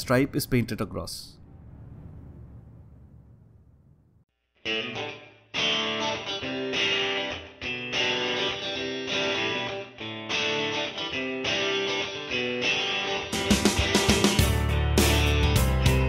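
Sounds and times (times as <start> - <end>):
instrumental guitar music: 4.7 - 16.0.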